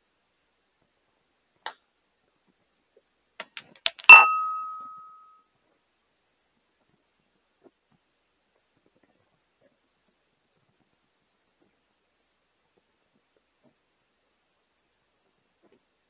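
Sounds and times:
sharp ringing clink: 0:04.1 - 0:05.4.

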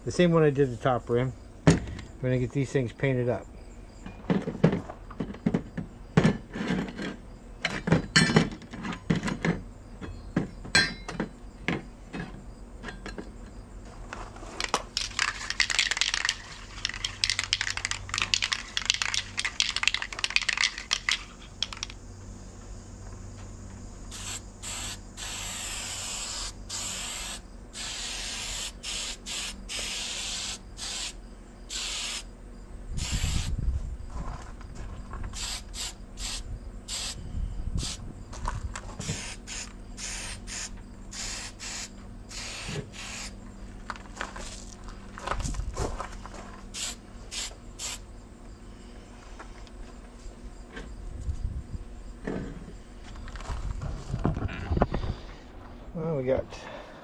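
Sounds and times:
aerosol can mixing ball rattling: 0:14.6 - 0:21.9
aerosol spray hissing: 0:24.1 - 0:32.3, 0:33.0 - 0:33.5, 0:35.4 - 0:37.2, 0:39.1 - 0:43.4, 0:46.8 - 0:48.0.

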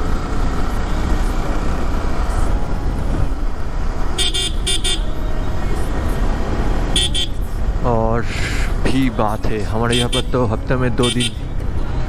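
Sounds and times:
motorcycle wind and road noise: 0:00.0 - 0:12.0
vehicle horn toots: 0:04.2 - 0:05.1, 0:06.9 - 0:07.4, 0:09.9 - 0:10.3, 0:11.0 - 0:11.4.

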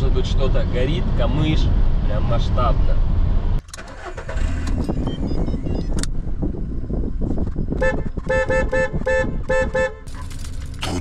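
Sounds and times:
car engine low rumble: 0:00.0 - 0:11.0
car horn short toots: 0:07.8 - 0:10.2.

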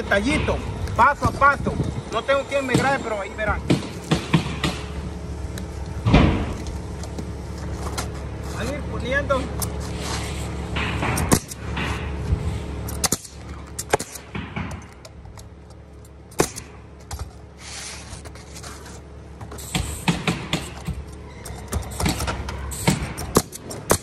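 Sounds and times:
steady low hum: 0:00.0 - 0:24.0
sharp clicks and knocks: 0:10.8 - 0:12.2, 0:12.9 - 0:17.4, 0:19.4 - 0:24.0.

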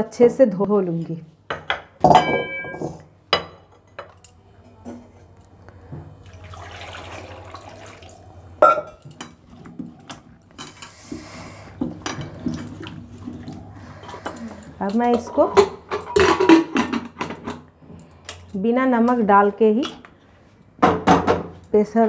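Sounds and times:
splashing water: 0:06.2 - 0:08.3, 0:12.2 - 0:14.0
water pouring from jug: 0:06.2 - 0:08.4.

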